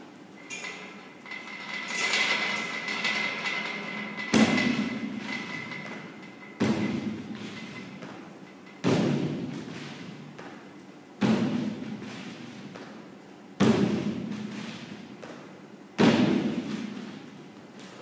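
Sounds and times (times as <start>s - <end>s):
feet landing on wooden box: 6.6s - 8.2s, 16.0s - 17.1s.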